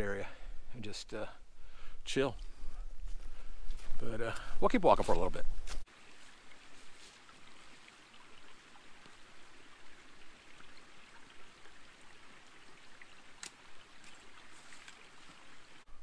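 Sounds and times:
creek trickling over stones: 4.7s - 16.0s.

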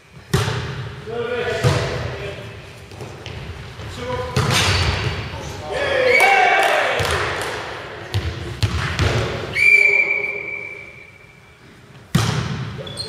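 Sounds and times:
ball bouncing on hall floor: 0.1s - 0.9s, 1.5s - 2.1s, 2.8s - 5.3s, 6.9s - 9.5s, 11.9s - 13.0s
referee's whistle long blast: 9.5s - 11.4s.

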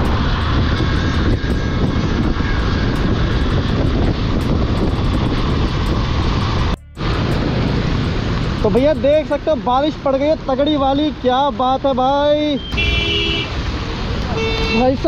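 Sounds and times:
wind buffeting microphone: 0.0s - 9.7s.

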